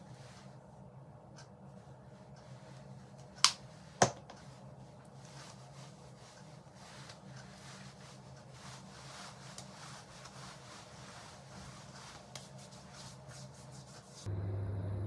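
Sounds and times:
low steady hum: 0.0s - 15.0s
hands rubbing skin: 4.4s - 14.3s.

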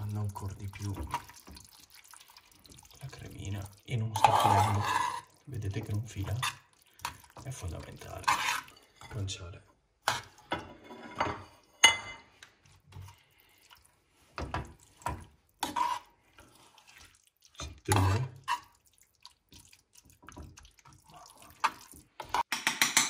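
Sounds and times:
wet sticky stirring of pasta: 0.0s - 10.6s, 11.6s - 22.5s
metal scraping on pan: 4.0s - 9.4s, 10.0s - 12.4s, 14.3s - 18.8s.

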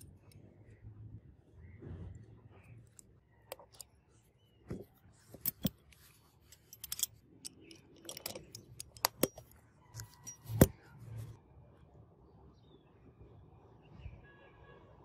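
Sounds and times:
metal knife parts clicking: 2.9s - 3.9s, 5.4s - 10.7s.

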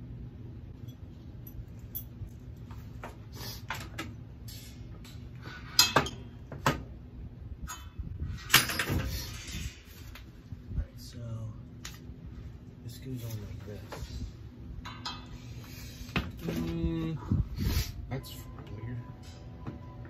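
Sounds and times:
low steady hum: 0.0s - 20.0s
metal hardware clinking: 0.8s - 2.7s.

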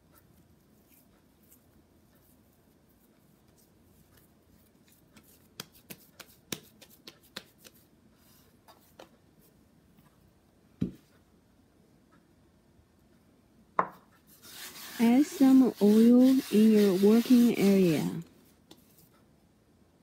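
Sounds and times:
hands rubbing dough: 0.0s - 10.2s, 13.9s - 19.4s
light slaps and taps on dough: 5.1s - 7.9s.

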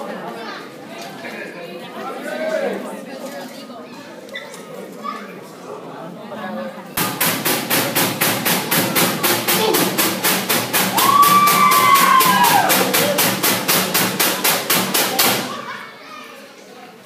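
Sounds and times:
fast steady drumbeat: 7.0s - 15.6s
long drawn-out shout: 10.9s - 13.1s.

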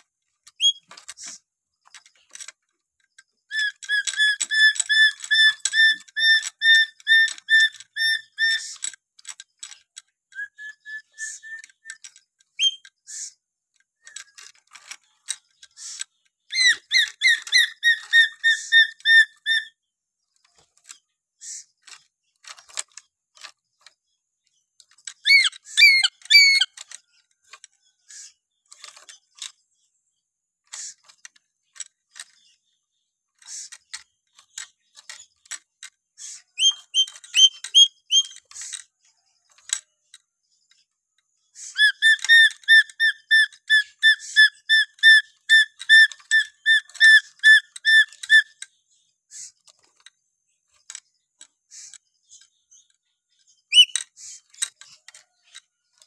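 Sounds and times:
short clicky bird calls: 0.0s - 56.0s
parrot whistling: 3.5s - 8.6s, 10.4s - 11.9s, 16.5s - 19.7s, 25.3s - 26.7s, 36.6s - 38.4s, 41.7s - 48.5s, 53.7s - 54.0s.

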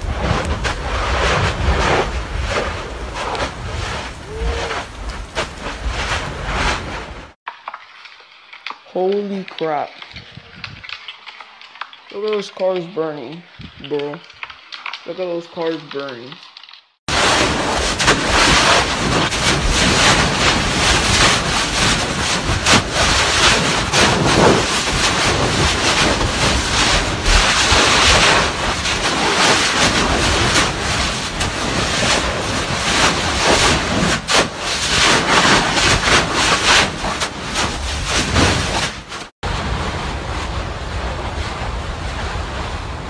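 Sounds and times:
lava spattering with loud rushing: 0.0s - 7.4s, 17.1s - 43.0s.

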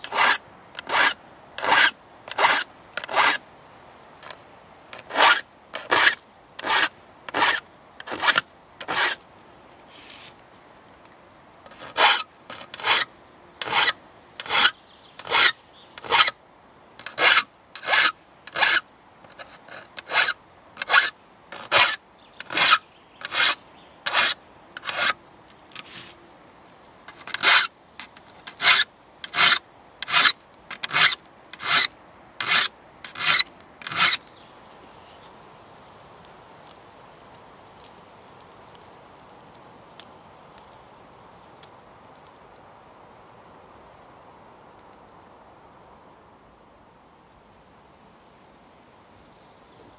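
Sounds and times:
hand file rasping on saw teeth: 0.0s - 3.4s, 5.0s - 9.2s, 11.7s - 13.0s, 13.6s - 16.3s, 17.0s - 25.2s, 27.2s - 27.7s, 28.5s - 34.2s.

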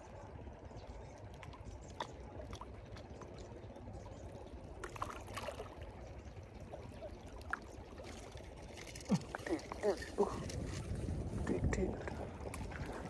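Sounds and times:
small waves lapping on rocks: 1.4s - 13.0s
steady low rumble: 5.6s - 13.0s.

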